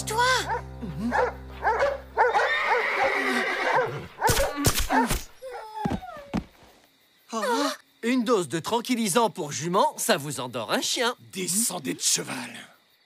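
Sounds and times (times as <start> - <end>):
cartoon dogs snarling and barking: 0.5 - 5.7
cartoon horse whinnying: 2.3 - 5.0.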